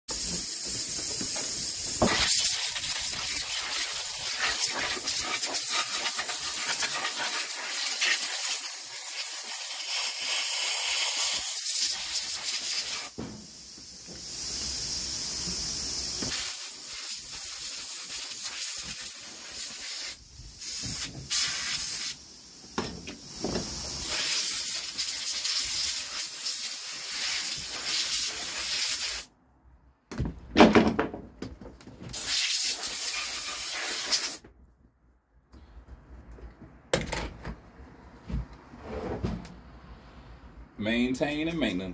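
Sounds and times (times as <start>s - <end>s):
compressed air blow gun hissing: 0.1s - 29.3s, 32.1s - 34.4s.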